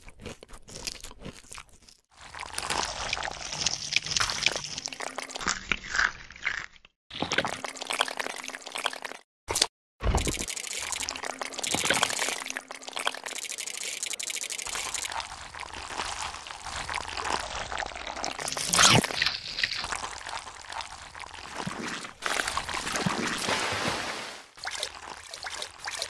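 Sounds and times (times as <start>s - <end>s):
wet mud burst: 21.4s - 26.0s.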